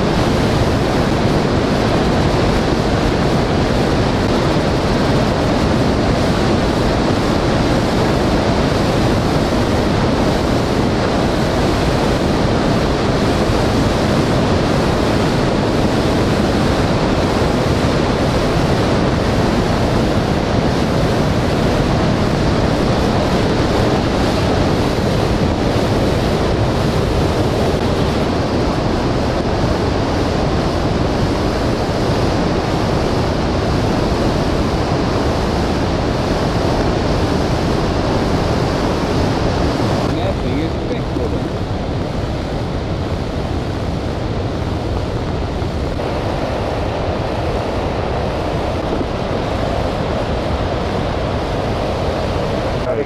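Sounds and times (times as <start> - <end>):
river rushing over rocks: 35.5 - 53.0.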